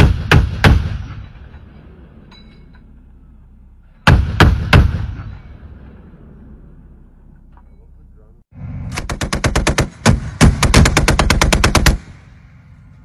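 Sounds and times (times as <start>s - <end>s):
rolling gunshot echo: 4.0s - 6.1s
chain gun firing bursts: 8.9s - 12.2s.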